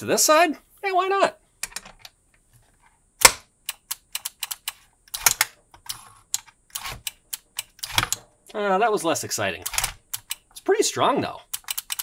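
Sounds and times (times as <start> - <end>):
relays clicking: 11.5 - 12.0.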